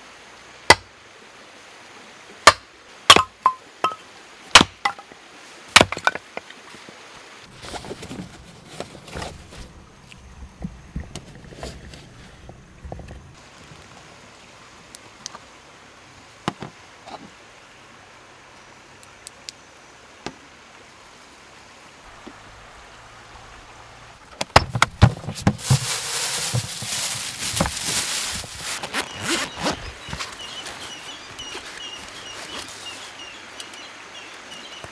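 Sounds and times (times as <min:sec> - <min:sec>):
gear rustling: 0:25.0 - 0:32.8.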